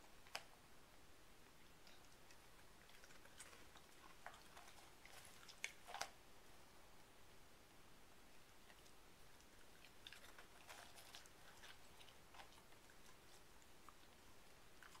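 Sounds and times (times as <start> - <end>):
dog crunching snacks: 1.8 - 6.2, 8.6 - 15.0.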